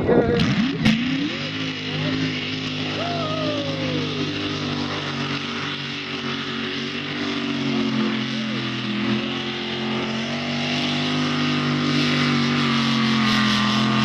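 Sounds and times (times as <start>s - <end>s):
tractor engine under heavy load: 0.0s - 14.0s.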